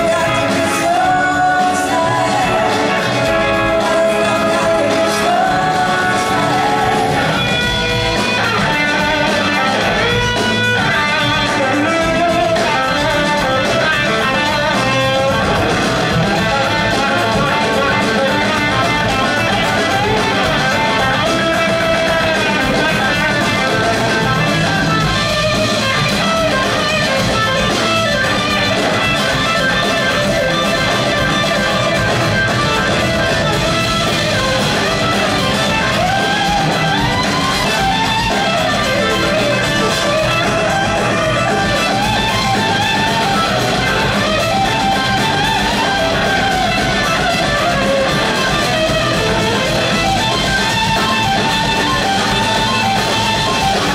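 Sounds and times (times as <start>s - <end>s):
blues rock band playing: 0.0s - 53.9s
electric guitars: 0.0s - 53.9s.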